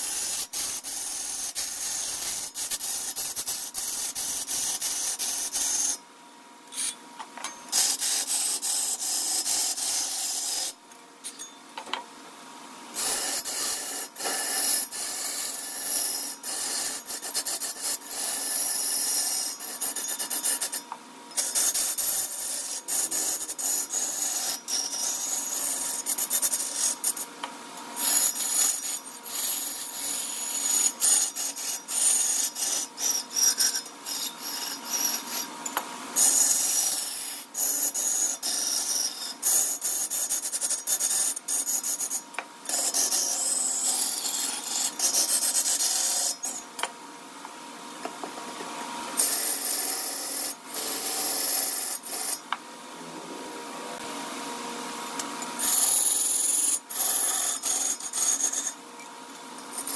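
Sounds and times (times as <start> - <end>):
tool scraping wood on lathe: 7.7 - 10.8, 13.0 - 20.8, 21.4 - 27.3, 28.0 - 46.6, 49.2 - 52.4, 55.6 - 58.8.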